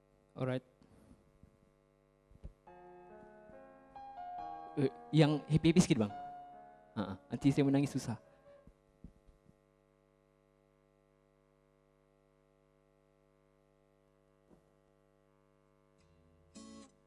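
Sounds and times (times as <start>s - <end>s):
strummed guitar chord: 2.7s - 8.6s.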